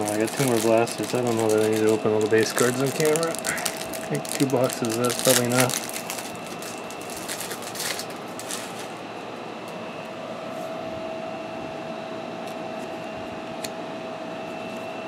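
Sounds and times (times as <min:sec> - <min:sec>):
trading cards shuffling: 0:00.0 - 0:09.0
background hum: 0:00.0 - 0:15.0
faint whine: 0:00.0 - 0:15.0.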